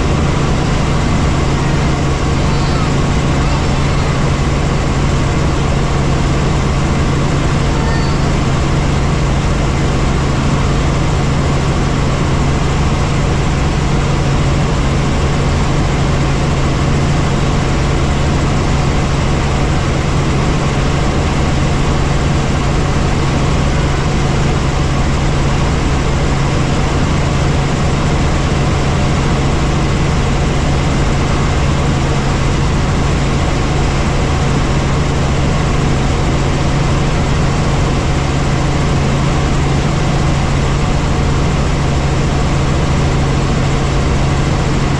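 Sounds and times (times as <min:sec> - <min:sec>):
low hum: 0:00.0 - 0:16.1
helicopter engine and rotors: 0:00.0 - 0:44.9.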